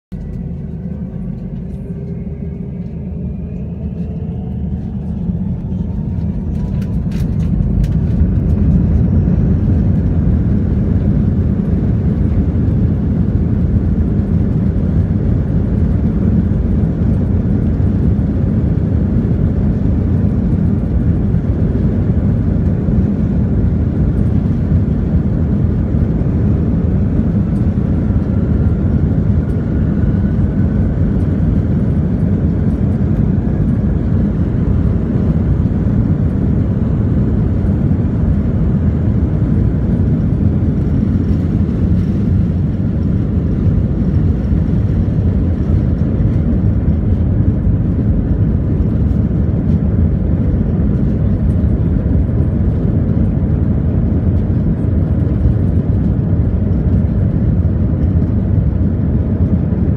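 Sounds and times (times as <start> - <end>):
jet engines spooling up: 0.1 - 12.1.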